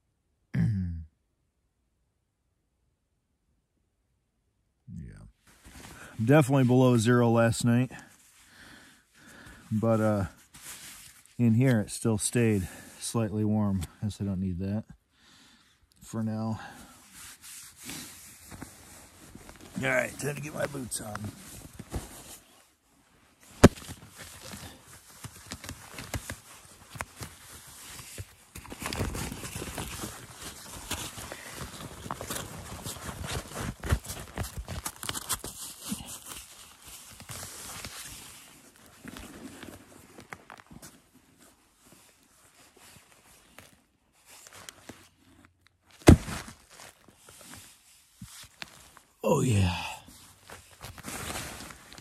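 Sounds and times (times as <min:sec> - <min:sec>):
rustling fabric: 0:10.3 - 0:11.5, 0:17.0 - 0:49.1, 0:50.1 - 0:52.0.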